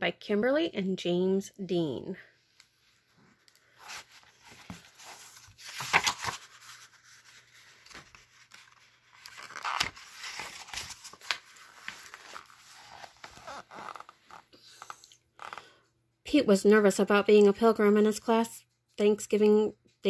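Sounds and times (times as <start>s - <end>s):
book pages rustling: 2.6s - 15.6s.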